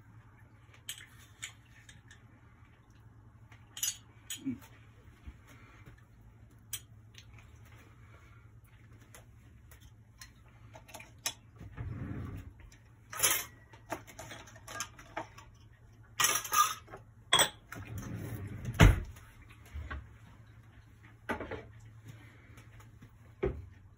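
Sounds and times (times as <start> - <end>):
dishes and utensils clattering: 3.7 - 4.6, 13.1 - 18.5.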